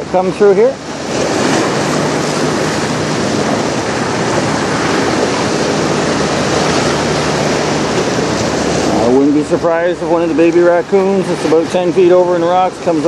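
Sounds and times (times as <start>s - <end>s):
wind buffeting microphone: 0.0s - 13.0s
river water splashing on rocks: 0.8s - 13.0s.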